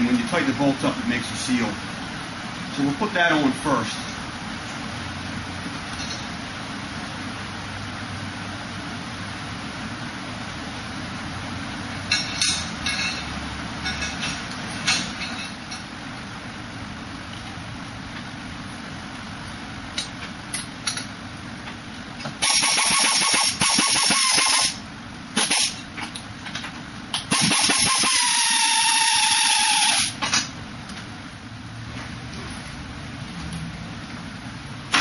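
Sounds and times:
pneumatic wrench running: 22.4s - 24.8s, 25.4s - 25.8s, 27.2s - 30.3s.

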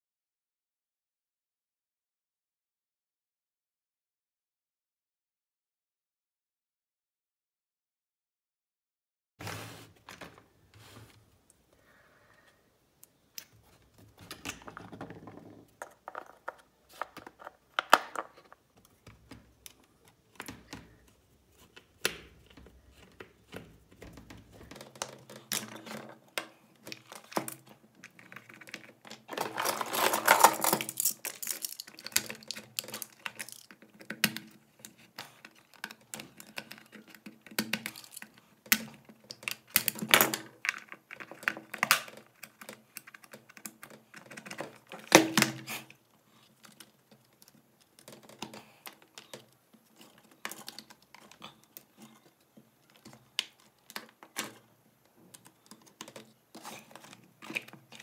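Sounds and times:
scraping and rustling: 9.4s - 11.4s, 13.6s - 33.8s
plastic parts clicking and knocking: 13.0s - 58.0s.

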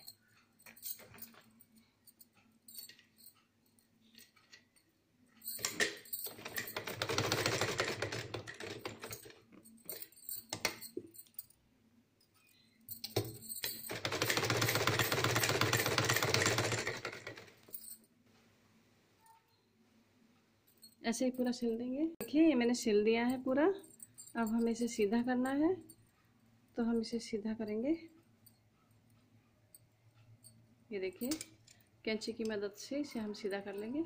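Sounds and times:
sewing machine stitching: 5.7s - 9.3s, 13.9s - 17.6s.

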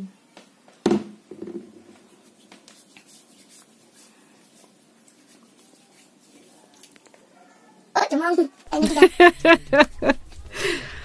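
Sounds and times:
hands rubbing and patting face: 2.0s - 7.0s.

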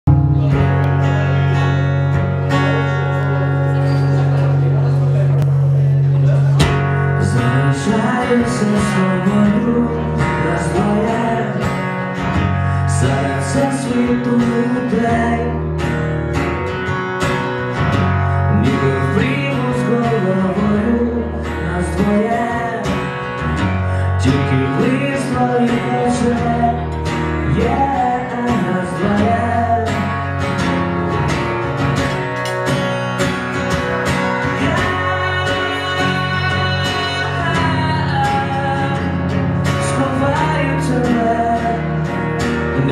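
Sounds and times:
acoustic guitar strumming: 0.0s - 42.9s
man singing: 6.6s - 16.2s, 18.3s - 30.7s, 34.0s - 42.9s.

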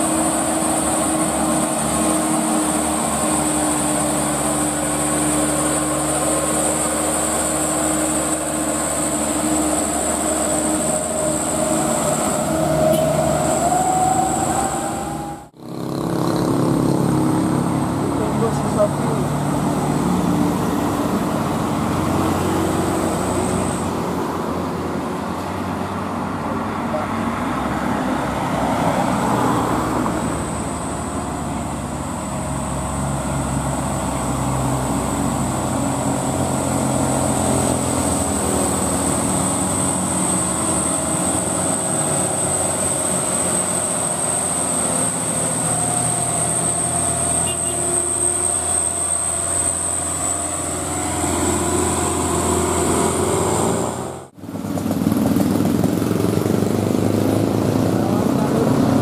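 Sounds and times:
high whine: 0.0s - 15.8s
diesel truck engine under load: 0.0s - 59.0s.

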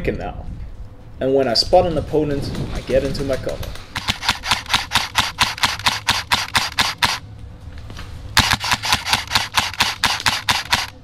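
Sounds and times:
airsoft rifle rapid fire: 3.9s - 7.2s, 8.4s - 11.0s.

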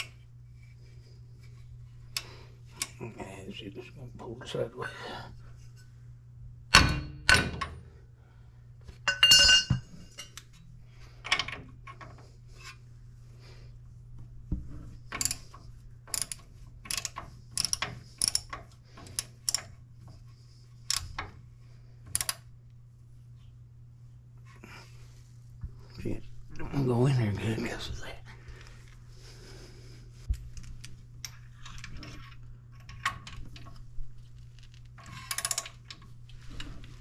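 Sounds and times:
metal tools clattering: 9.1s - 10.4s
ratchet wrench clicking: 16.1s - 19.7s, 35.2s - 35.8s.

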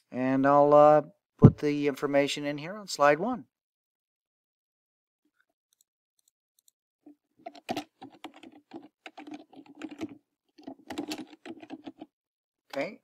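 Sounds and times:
typing on computer keyboard: 7.4s - 12.1s.

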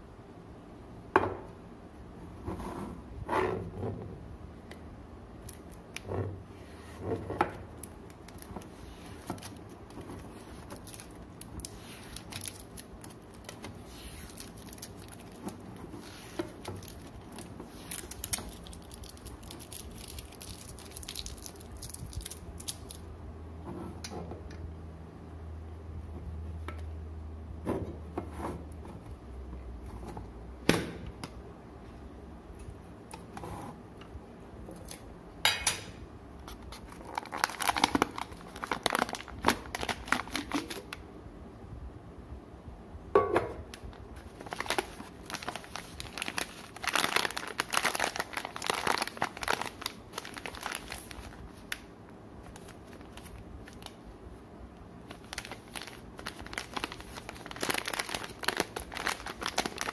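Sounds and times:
plastic pouch crinkling: 7.7s - 23.0s, 36.5s - 40.9s, 43.8s - 54.0s, 55.0s - 59.9s.

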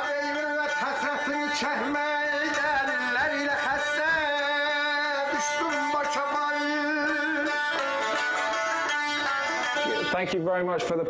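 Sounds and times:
man singing folk song: 0.0s - 8.2s
long-necked lute playing: 0.0s - 10.5s.

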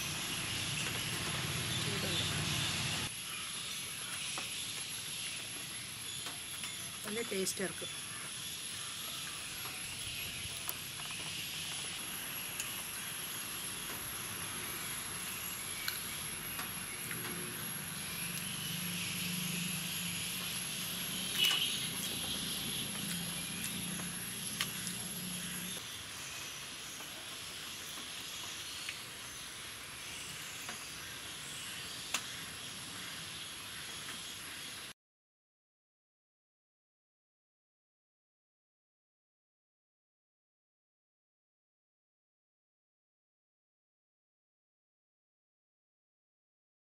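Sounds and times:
outdoor background hiss: 0.0s - 34.9s.

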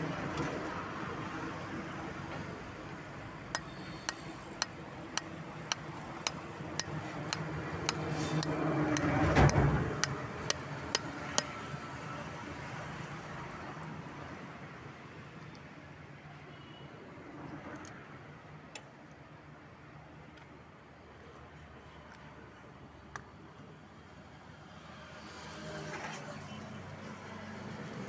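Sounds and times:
spanner tapping coconut shell: 3.6s - 11.5s.

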